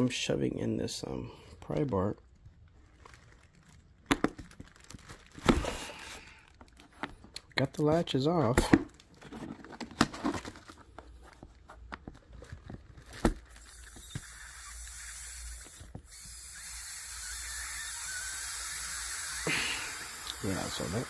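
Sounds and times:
air hissing into case: 0:13.6 - 0:21.0.

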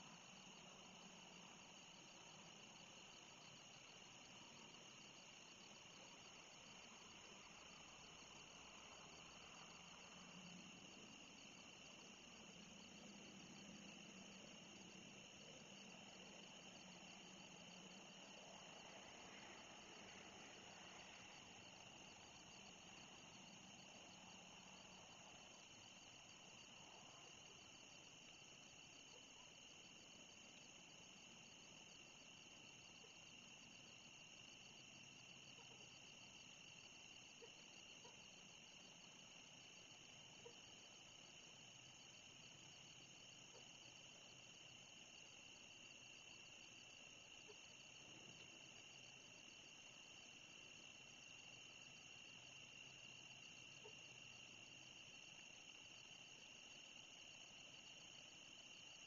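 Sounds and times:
crickets and insects trilling: 0:00.0 - 0:59.0.

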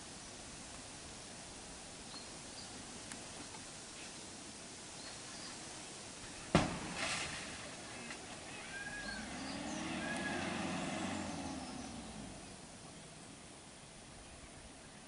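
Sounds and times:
sharp knock: 0:06.5 - 0:07.2
vehicle engine passing: 0:06.9 - 0:13.5.

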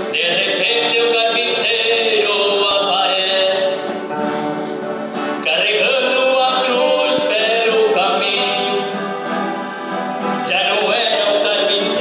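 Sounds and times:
man singing into a microphone: 0:00.0 - 0:04.0, 0:05.4 - 0:09.2, 0:10.4 - 0:12.0
instrumental accompaniment: 0:00.0 - 0:12.0.

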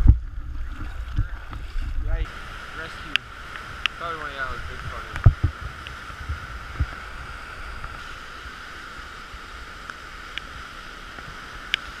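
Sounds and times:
low rumble: 0:00.0 - 0:08.0
fast river water rushing: 0:00.2 - 0:12.0.

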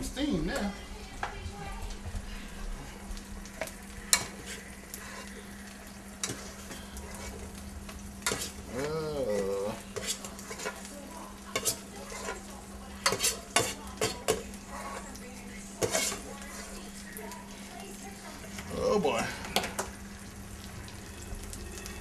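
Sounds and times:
food sizzling in frying pan: 0:00.0 - 0:22.0
utensil scraping pan: 0:03.6 - 0:05.4, 0:06.2 - 0:07.5, 0:08.2 - 0:08.7, 0:09.4 - 0:10.9, 0:11.5 - 0:15.2, 0:15.8 - 0:16.8
low hum: 0:19.4 - 0:22.0.

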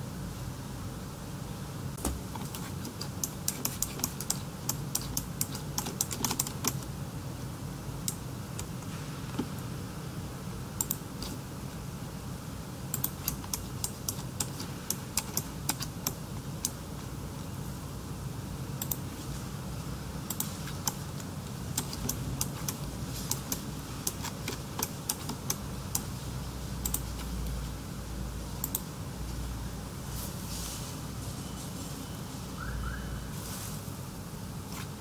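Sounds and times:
steady low hum: 0:00.0 - 0:35.0
computer key clicks: 0:02.4 - 0:06.8, 0:10.8 - 0:11.0, 0:12.9 - 0:16.8, 0:20.3 - 0:21.0, 0:26.8 - 0:27.1, 0:28.6 - 0:28.9.

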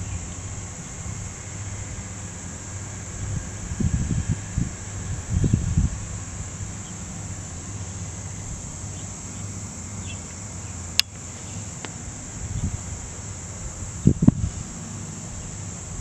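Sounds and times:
insect chorus: 0:00.0 - 0:16.0
sharp click: 0:11.0 - 0:11.2.

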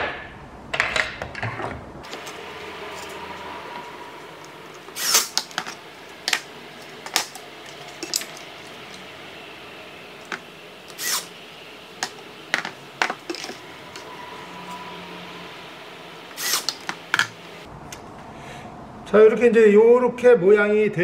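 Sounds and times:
wooden table legs clacking: 0:12.0 - 0:13.6.

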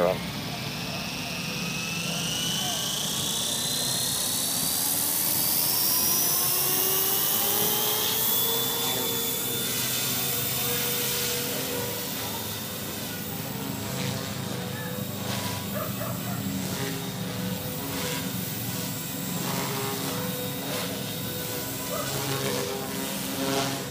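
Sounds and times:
rc helicopter motor whine: 0:00.0 - 0:23.9.

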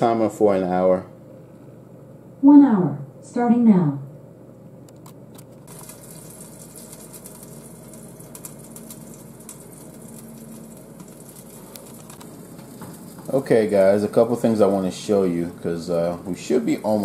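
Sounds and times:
oven fan hiss: 0:00.0 - 0:17.0
roasting chicken crackles: 0:05.6 - 0:17.0.

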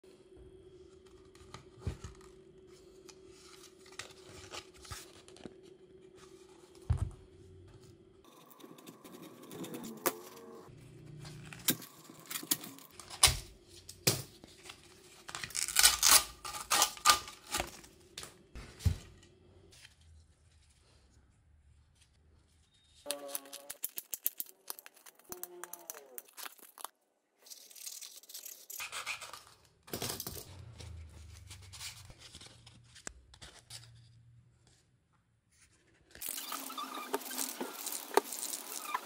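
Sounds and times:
paper cone tearing: 0:15.3 - 0:17.6, 0:23.1 - 0:26.9.

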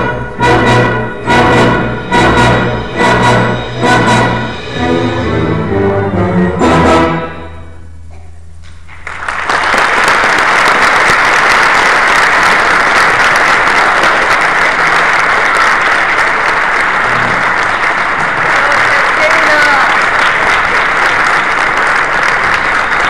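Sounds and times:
audience applause: 0:08.9 - 0:23.0.

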